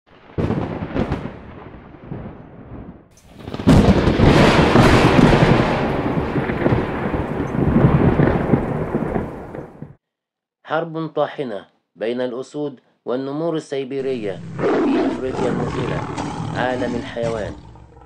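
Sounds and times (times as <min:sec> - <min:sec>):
thunder: 0:00.1 - 0:10.0
heavy rain: 0:03.2 - 0:09.9.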